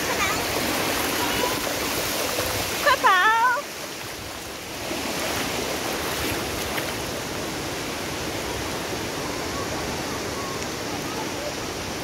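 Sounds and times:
water splashing around feet: 0.0s - 7.1s
shallow surf: 0.0s - 12.0s.

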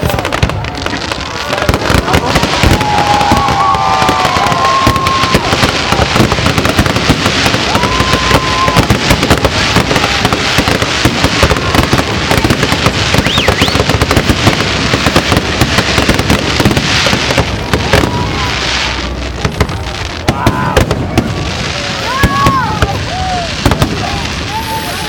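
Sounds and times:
fireworks bangs and crackling: 0.0s - 25.0s
fireworks whistling: 0.0s - 25.0s.

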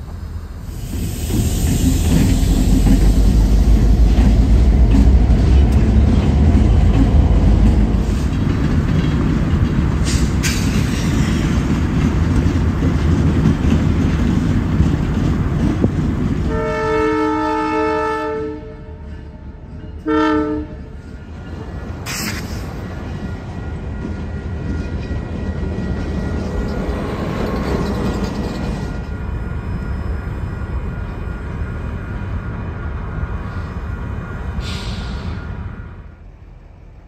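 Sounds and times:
diesel locomotives rumbling past: 0.0s - 37.0s
locomotive air horn: 16.5s - 19.1s, 20.0s - 20.9s.

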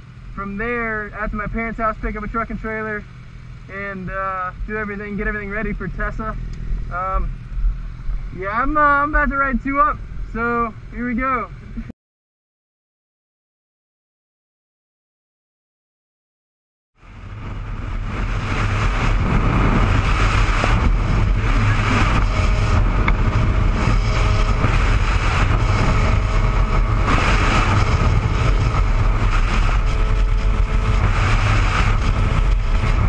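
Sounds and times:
motorcycle engine: 17.0s - 33.0s
wind rushing over camera: 17.0s - 33.0s.

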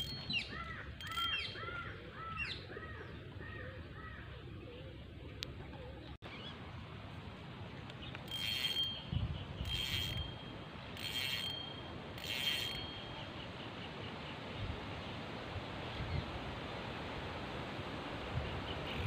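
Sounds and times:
fishing reel whirring: 0.9s - 1.6s, 8.3s - 13.2s.

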